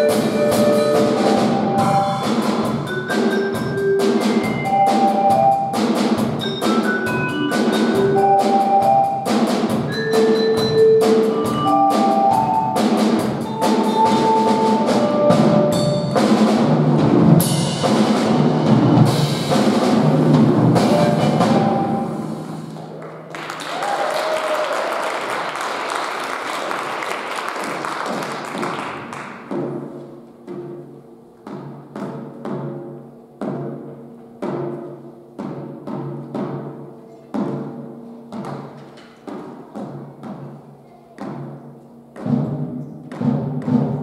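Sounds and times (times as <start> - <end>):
mallet keyboard notes: 0.0 - 17.9, 18.5 - 22.6
drum kit beat: 0.0 - 23.0, 27.5 - 44.0.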